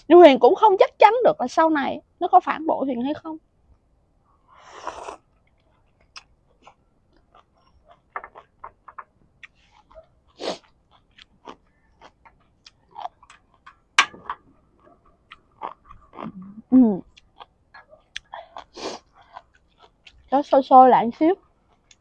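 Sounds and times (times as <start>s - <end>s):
wet chewing clicks and smacks: 5.3s - 14.0s, 14.8s - 16.4s, 17.0s - 20.7s, 21.4s - 22.0s.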